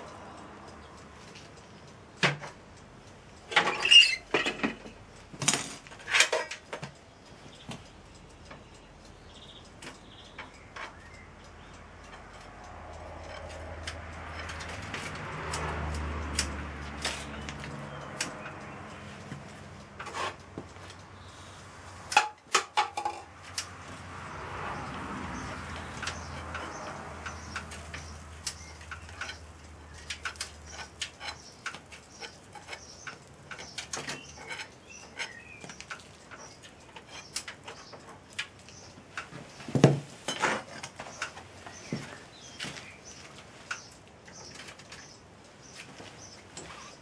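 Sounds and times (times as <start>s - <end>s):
metal clanks and clatter: 3.5s - 6.8s, 22.1s - 23.3s.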